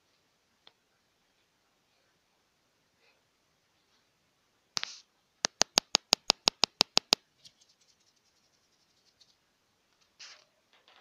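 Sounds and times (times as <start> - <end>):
rapid sharp clicks: 4.8 - 7.2
soft rustle: 7.3 - 10.8.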